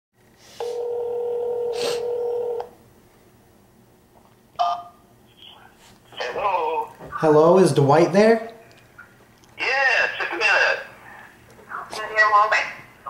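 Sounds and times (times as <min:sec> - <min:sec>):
telephone ringback tone: 0:00.6 - 0:02.7.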